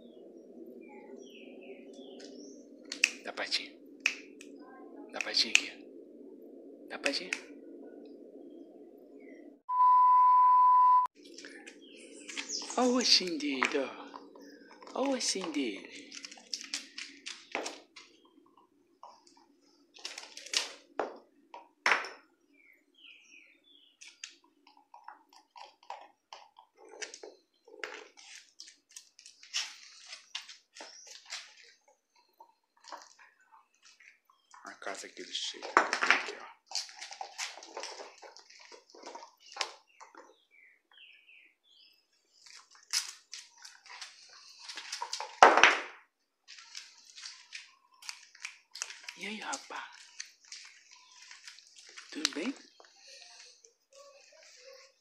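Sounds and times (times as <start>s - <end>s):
dog gnawing bone on concrete: 36.6s - 39.8s.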